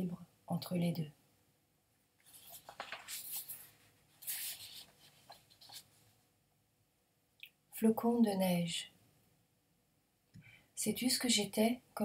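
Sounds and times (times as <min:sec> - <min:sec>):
paper rustling: 0:02.2 - 0:06.1.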